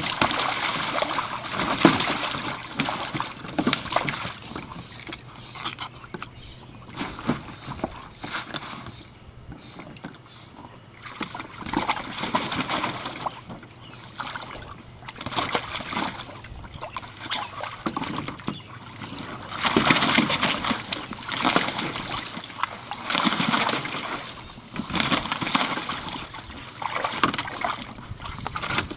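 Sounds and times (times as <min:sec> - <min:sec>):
water splashing in a pool: 0:00.0 - 0:28.9.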